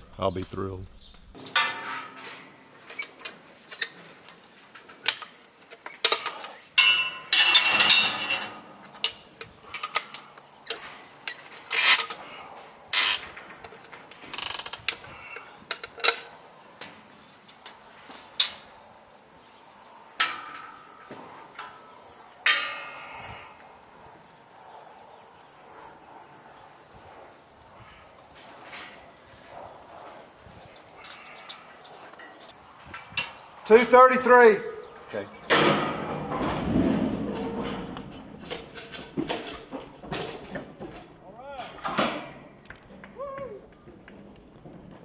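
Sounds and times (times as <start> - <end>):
metal clicks and clanks: 1.4 - 18.8, 19.8 - 23.4, 35.3 - 42.8.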